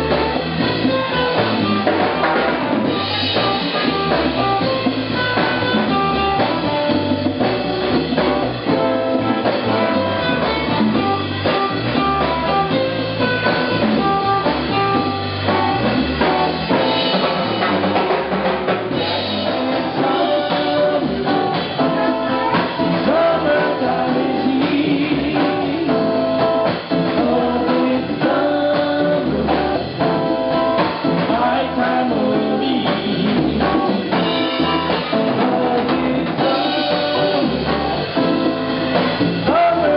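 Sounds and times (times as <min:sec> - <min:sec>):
bass guitar: 0:00.0 - 0:39.9
congas: 0:00.0 - 0:39.9
drum kit: 0:00.0 - 0:39.9
man singing into a microphone: 0:19.4 - 0:21.4, 0:22.1 - 0:26.4, 0:27.0 - 0:29.8, 0:31.1 - 0:33.4, 0:35.2 - 0:37.7, 0:39.4 - 0:39.9.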